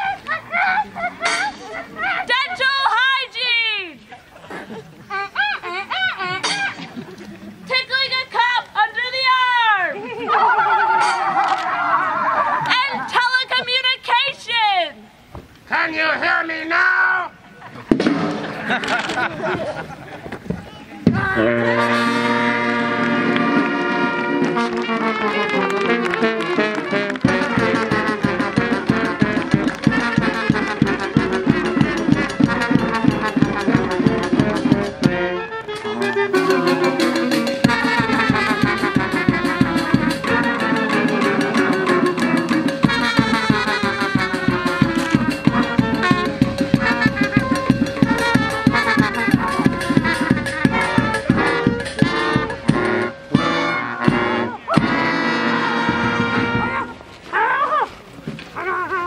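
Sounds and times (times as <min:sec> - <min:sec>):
brass band playing: 0:01.2 - 0:03.7, 0:07.7 - 0:14.2, 0:21.2 - 0:57.1.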